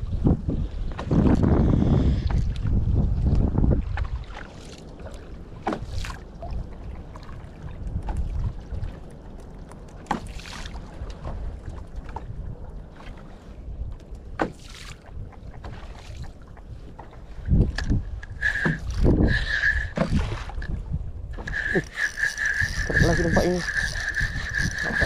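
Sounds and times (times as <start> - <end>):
wind buffeting microphone: 0.0 - 4.4, 5.5 - 9.2, 15.0 - 25.0
high squeak: 18.4 - 20.0, 21.4 - 25.0.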